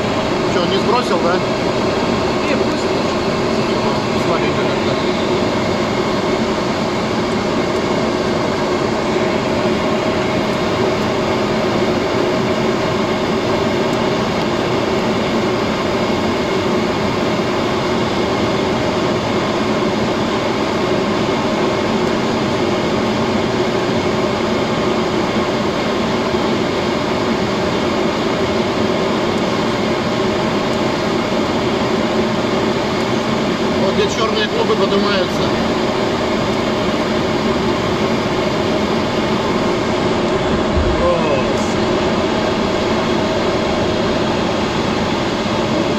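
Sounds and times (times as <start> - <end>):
jet engine drone in cockpit: 0.0 - 45.9
steady hum tones: 37.9 - 45.4
airflow: 39.0 - 45.0.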